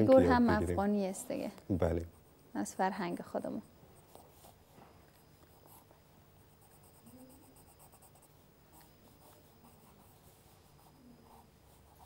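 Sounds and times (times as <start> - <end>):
pencil scratching on paper: 5.5 - 12.0.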